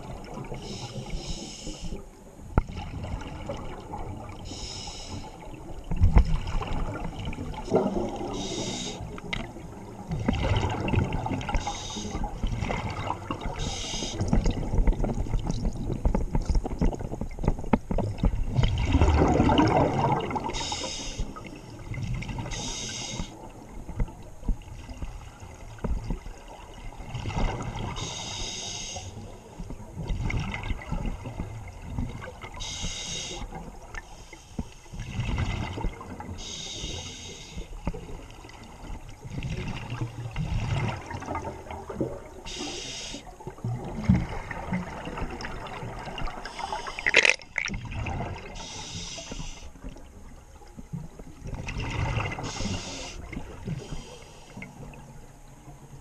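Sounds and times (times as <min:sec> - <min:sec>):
regulator inhalation hiss: 0:00.6 - 0:02.0, 0:04.5 - 0:05.4, 0:08.3 - 0:09.1, 0:11.6 - 0:12.2, 0:13.6 - 0:14.2, 0:20.6 - 0:21.4, 0:22.5 - 0:23.4, 0:28.0 - 0:29.2, 0:32.6 - 0:33.5, 0:36.4 - 0:37.7, 0:42.5 - 0:43.3, 0:46.5 - 0:47.2, 0:48.6 - 0:49.8, 0:52.5 - 0:54.6
exhaust bubbles bubbling: 0:18.2 - 0:20.6.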